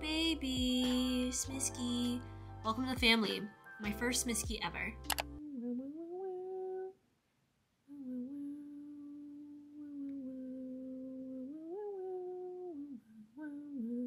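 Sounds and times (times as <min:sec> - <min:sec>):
woman humming softly: 0:05.4 - 0:07.0, 0:07.9 - 0:14.0.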